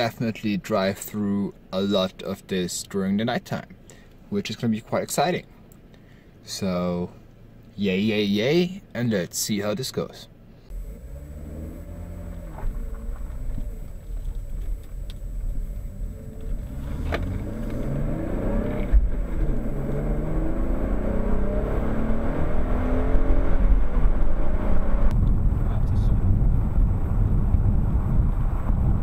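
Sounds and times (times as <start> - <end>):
road noise: 10.4 - 29.0
car engine accelerating: 10.7 - 29.0.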